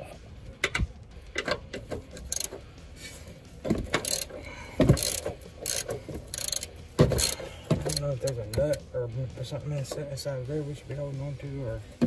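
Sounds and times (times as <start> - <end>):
ratchet wrench clicking: 0.6 - 2.6, 3.7 - 8.8.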